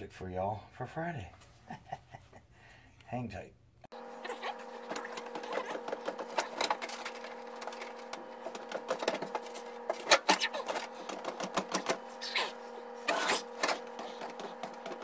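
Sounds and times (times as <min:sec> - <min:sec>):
steady machine hum: 0:03.8 - 0:15.0.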